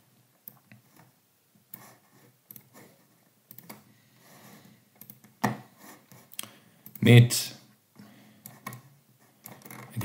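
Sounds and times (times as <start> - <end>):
computer mouse clicks: 2.5 - 2.8, 3.5 - 3.9, 5.0 - 5.5, 6.1 - 7.1, 8.0 - 9.9.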